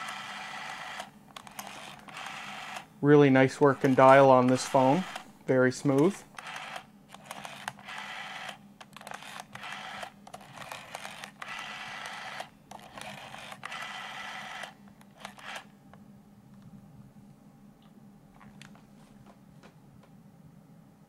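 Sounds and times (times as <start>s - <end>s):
rotary phone dial whirring: 0.0s - 2.9s, 3.6s - 5.3s, 5.9s - 15.7s.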